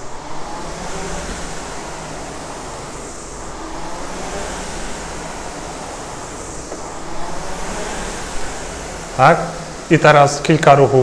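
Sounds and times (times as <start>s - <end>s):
rowing machine fan whooshing: 0.0s - 11.0s.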